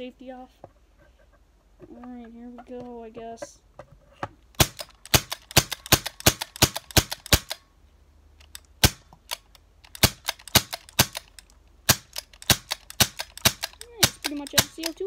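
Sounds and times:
gas pistol shots popping: 4.6s - 7.6s, 8.8s - 11.3s, 11.9s - 15.0s.

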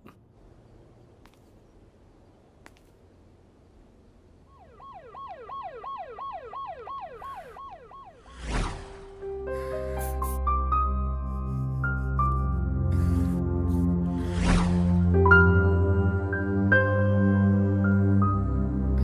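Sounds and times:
faint street background: 0.0s - 19.0s
siren in quick falling sweeps: 4.5s - 9.1s.

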